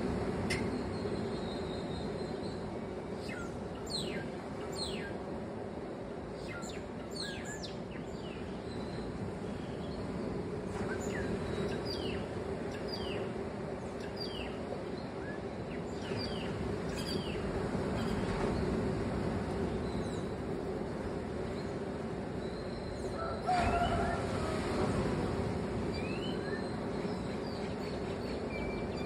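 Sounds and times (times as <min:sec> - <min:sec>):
beach surf rushing: 0:08.2 - 0:29.0.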